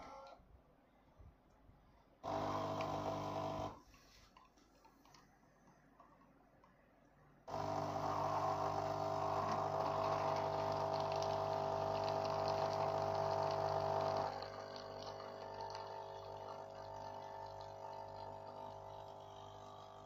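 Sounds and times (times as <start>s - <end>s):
espresso machine pump humming: 2.2s - 3.8s, 7.5s - 20.0s
coffee streaming into a cup: 7.5s - 20.0s.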